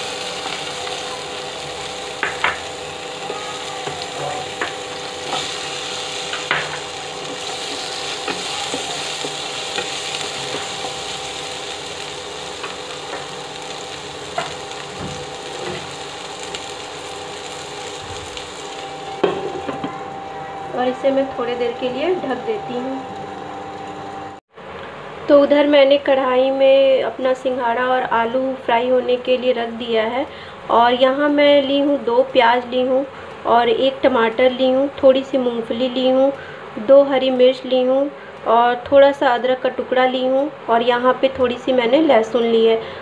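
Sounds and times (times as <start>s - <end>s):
food sizzling in hot oil: 0.0s - 24.4s.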